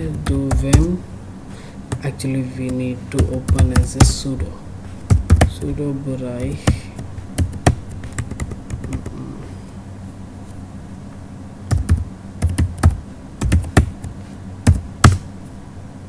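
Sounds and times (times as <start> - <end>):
keyboard typing: 0.0 - 1.0, 1.9 - 4.3, 5.1 - 5.8, 6.4 - 9.2, 11.7 - 15.2.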